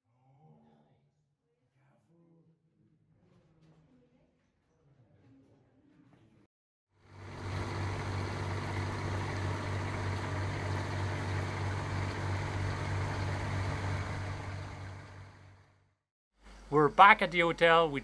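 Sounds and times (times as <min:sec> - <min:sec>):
boat engine droning: 0:07.0 - 0:15.8
water rushing: 0:07.2 - 0:15.6.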